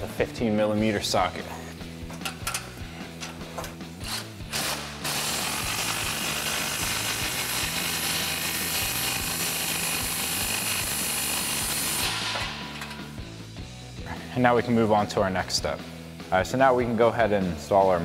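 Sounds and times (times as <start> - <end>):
electric ratchet running: 4.0 - 13.0.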